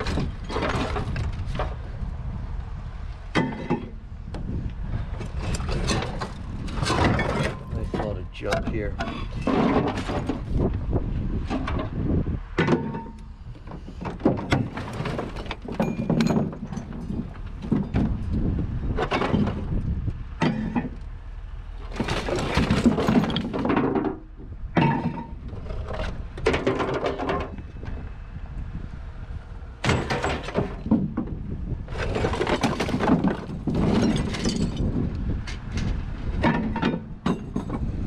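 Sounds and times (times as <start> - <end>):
scrap metal clanking and crashing: 0.0 - 1.8, 3.3 - 4.0, 5.1 - 10.7, 12.6 - 19.8, 20.4 - 21.0, 21.7 - 27.6, 29.8 - 38.0.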